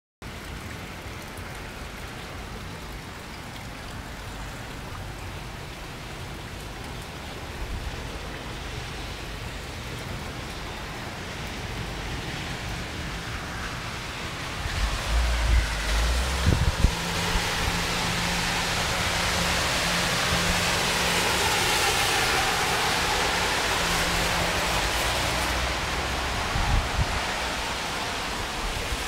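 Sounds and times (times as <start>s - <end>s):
steady rain hiss: 0.2s - 29.0s.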